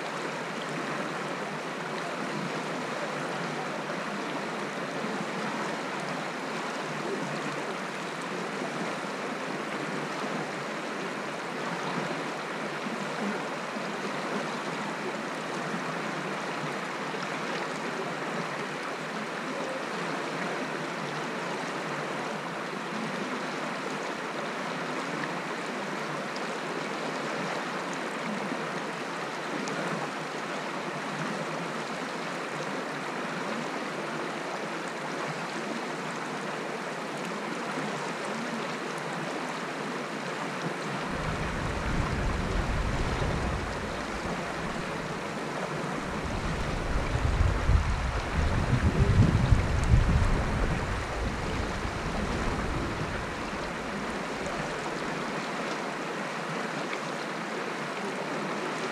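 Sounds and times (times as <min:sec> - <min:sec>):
stream babbling over stones: 0:00.0 - 0:58.9.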